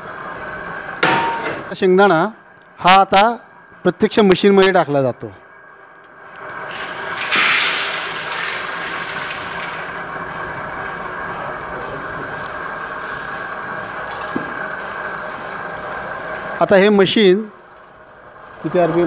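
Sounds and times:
oil press humming: 0:06.0 - 0:16.9.

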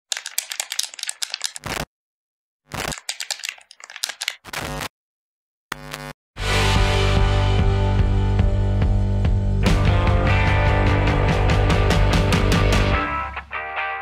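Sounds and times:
typewriter keystroke clicks: 0:00.1 - 0:01.8, 0:02.8 - 0:04.4
rock music with guitar: 0:06.4 - 0:14.0.

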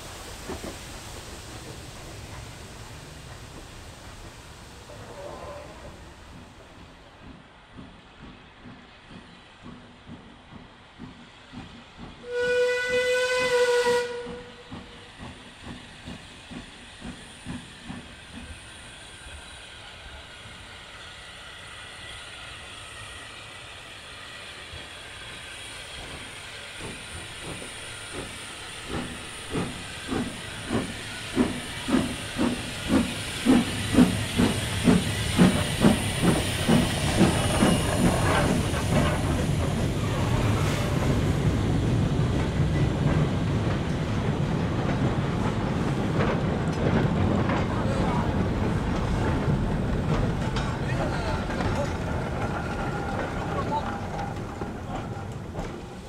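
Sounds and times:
steam hissing: 0:00.0 - 0:56.0
steam locomotive whistle: 0:12.2 - 0:14.7.

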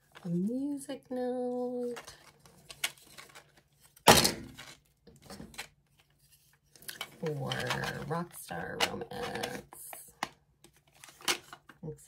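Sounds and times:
loud thunk of object set down: 0:04.1 - 0:04.7.

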